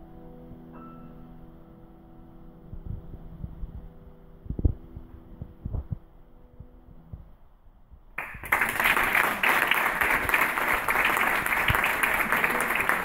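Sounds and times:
audience applause: 8.2 - 13.0.

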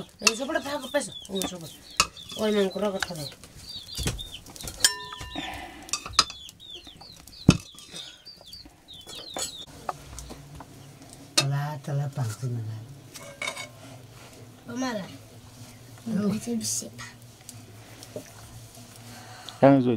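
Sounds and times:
metal spoon clinking on pots: 0.0 - 3.4, 4.6 - 8.2, 9.0 - 10.4, 11.3 - 11.6, 13.1 - 13.8
chicks peeping: 0.0 - 11.3.

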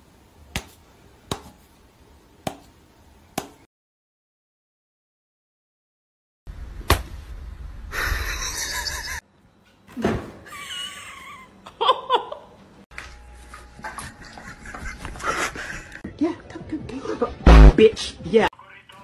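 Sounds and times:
sharp knock: 17.5 - 17.8.

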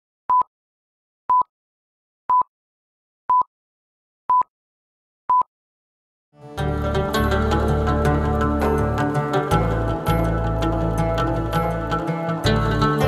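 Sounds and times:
plucked-string music: 6.4 - 13.0.

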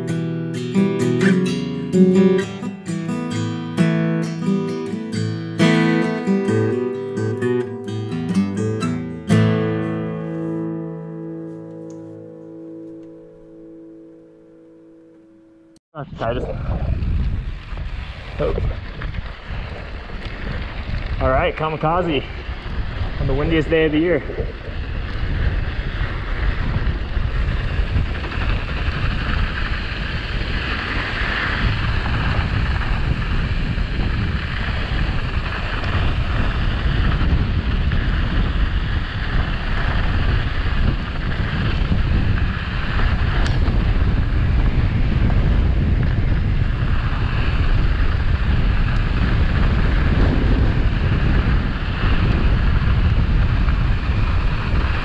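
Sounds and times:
wind buffeting microphone: 16.0 - 55.0
bike tyres rolling on dirt: 16.3 - 55.0.

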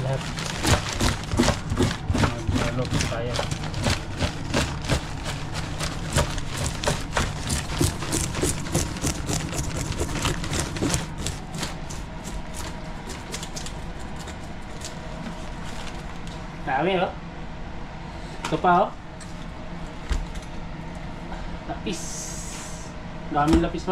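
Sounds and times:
plastic bag crinkling: 0.0 - 12.8
mechanical hum: 0.0 - 23.9.

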